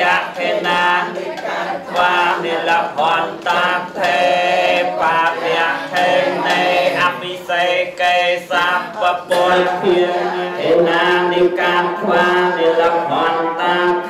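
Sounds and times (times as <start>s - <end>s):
man chanting through loudspeaker: 6.6s - 14.0s.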